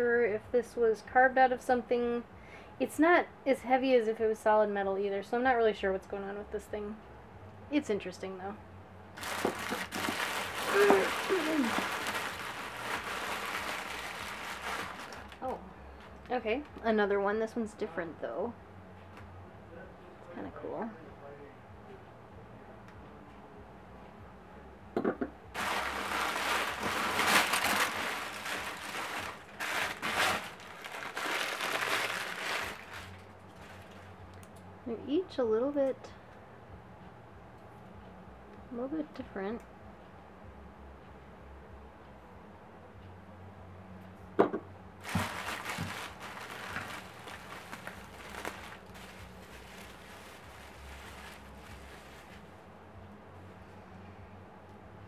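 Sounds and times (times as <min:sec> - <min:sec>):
packing paper rustling: 0:09.2 - 0:15.6, 0:25.6 - 0:34.2, 0:45.0 - 0:52.5.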